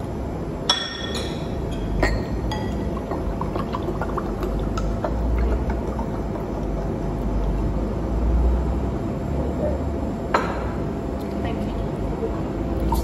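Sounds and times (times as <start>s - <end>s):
drink pouring into glass: 2.2s - 7.7s.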